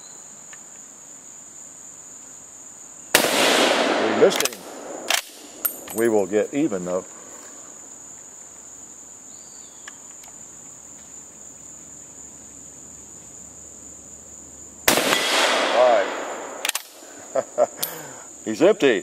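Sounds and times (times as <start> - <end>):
insects buzzing: 0.0 - 19.0
rifle shot echoing: 3.1 - 6.0, 14.9 - 17.0.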